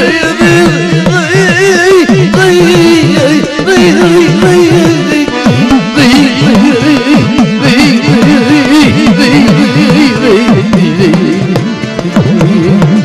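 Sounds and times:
folk melody instruments: 0:00.0 - 0:13.0
hand drum with pitch-bending strokes: 0:09.2 - 0:13.0.

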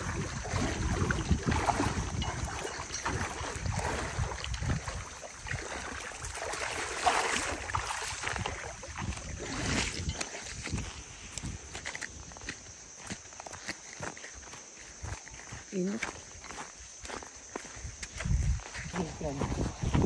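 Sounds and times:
wind rumbling on microphone: 0:00.0 - 0:13.2, 0:17.6 - 0:20.0
footsteps wading through water: 0:00.0 - 0:20.0.

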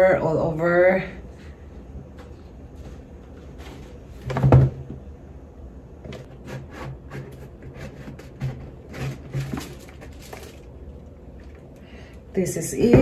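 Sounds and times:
cardboard box scraping and rustling: 0:06.2 - 0:10.6.

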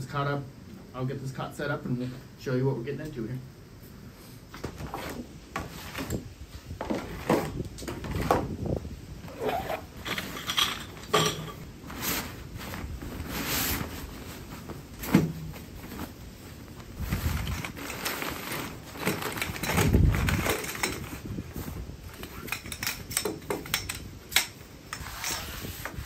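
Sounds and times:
fabric rustling and sliding: 0:09.3 - 0:22.5, 0:25.0 - 0:26.0.

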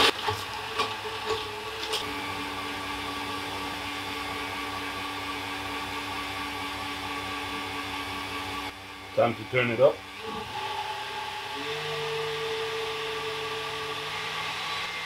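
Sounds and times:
ice knocking in blender: 0:00.0 - 0:02.0
blender running: 0:00.0 - 0:15.0.

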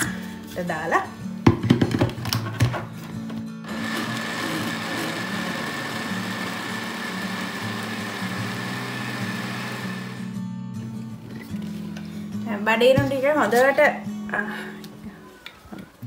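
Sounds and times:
blender whining: 0:03.6 - 0:10.4.

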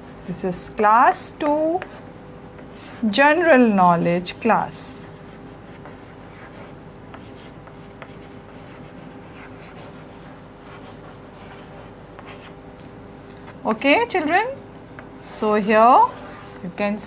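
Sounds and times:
steady low hum: 0:00.0 - 0:17.0
chalk scratching on blackboard: 0:02.6 - 0:03.1, 0:05.1 - 0:12.9, 0:15.2 - 0:16.6.

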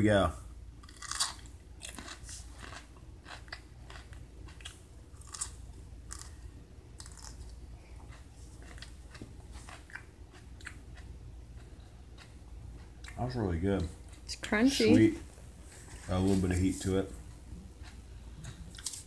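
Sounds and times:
man chewing crunchy pepper: 0:00.8 - 0:13.2, 0:17.2 - 0:19.0.

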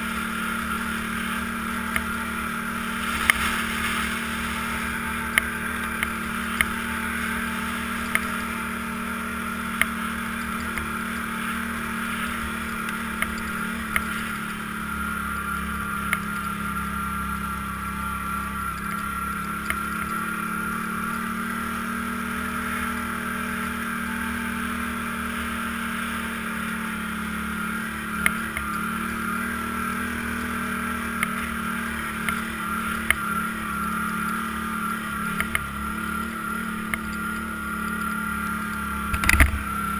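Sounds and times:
atv engine running: 0:00.0 - 0:39.9
sharp clicks or knocks: 0:39.1 - 0:39.6.

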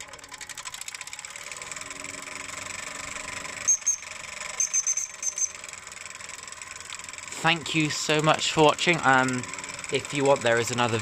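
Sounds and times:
electric motor whine: 0:00.0 - 0:11.0
small steam engine ticking: 0:00.0 - 0:11.0
short high-pitched chirps: 0:03.7 - 0:05.6.

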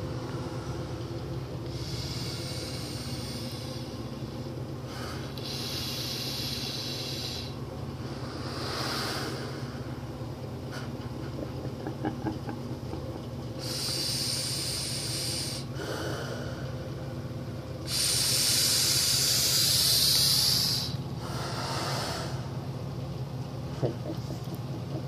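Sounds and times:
low hum: 0:00.0 - 0:25.0
air hissing through gas mask: 0:01.7 - 0:04.0, 0:04.9 - 0:09.8, 0:13.6 - 0:16.5, 0:17.8 - 0:22.5.

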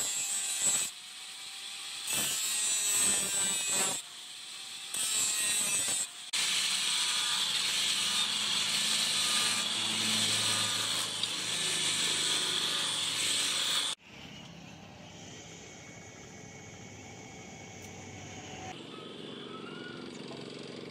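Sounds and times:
angle grinder grinding steel blade: 0:00.0 - 0:14.0.

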